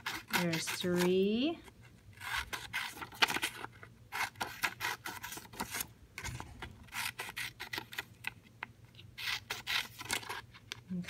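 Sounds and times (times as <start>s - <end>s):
scissors snipping paper: 0.0s - 1.5s, 2.2s - 8.4s, 9.2s - 10.8s.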